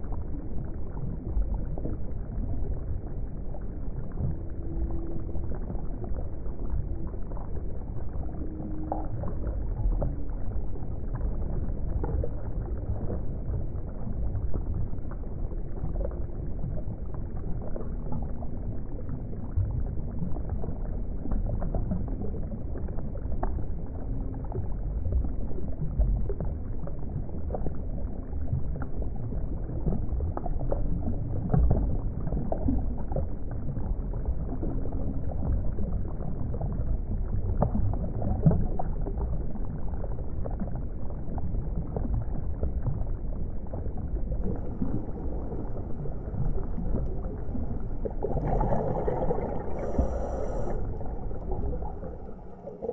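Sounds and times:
moving water rumble: 0.0 - 52.9
water bubbling: 33.8 - 52.9.

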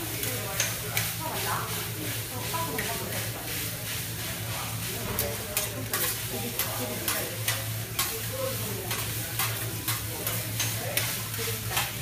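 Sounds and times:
rice sizzling on a griddle: 0.0 - 12.0
metal spatulas clacking on griddle: 0.3 - 1.2, 5.2 - 8.3, 8.9 - 12.0.

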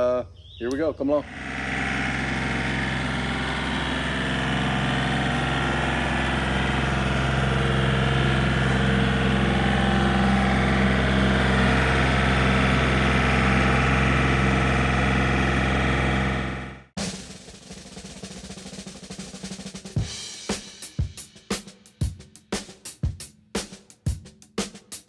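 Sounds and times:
tractor diesel engine running: 1.2 - 17.0.

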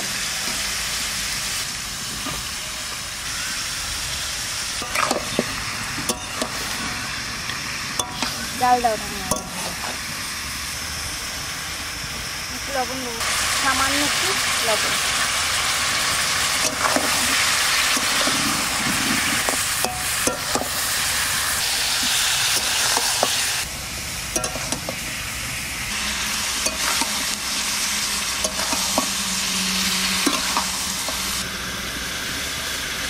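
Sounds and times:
meat and onions sizzling in oil: 0.0 - 33.0
metal spatula scraping a pan: 4.8 - 7.1, 26.3 - 31.3.

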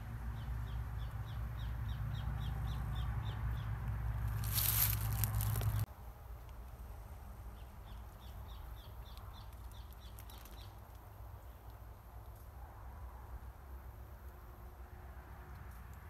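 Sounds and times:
forest floor ambience: 0.0 - 12.6
rustling handling noise: 4.3 - 5.9.

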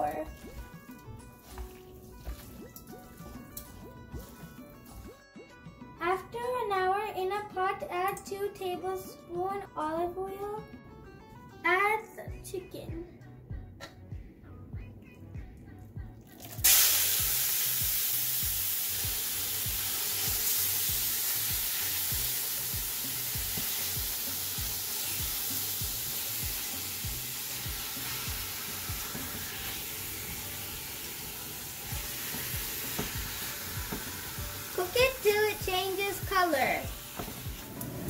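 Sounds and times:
loud frying sizzle: 16.5 - 38.0.

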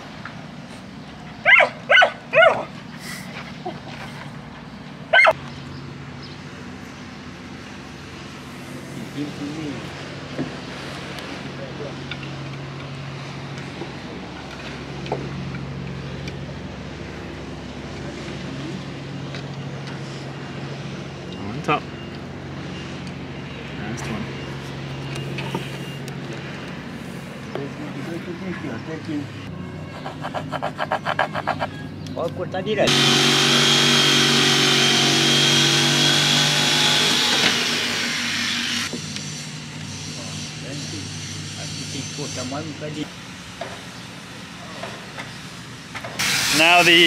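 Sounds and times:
electric saw cutting wood: 32.8 - 43.1, 46.2 - 47.0.

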